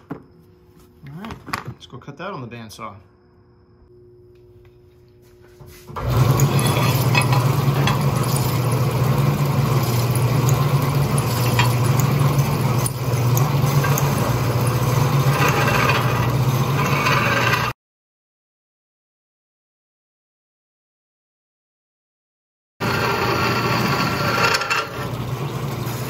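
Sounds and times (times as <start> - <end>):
low hum: 3.0 - 17.0
bandsaw cutting steel: 6.0 - 17.8, 22.8 - 25.2.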